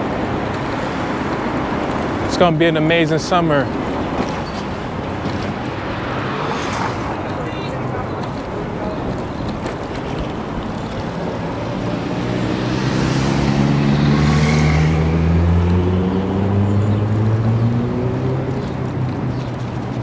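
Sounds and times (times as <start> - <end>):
wind and road rush: 0.0 - 20.0
vehicle engine passing by: 4.4 - 9.4, 11.2 - 19.9.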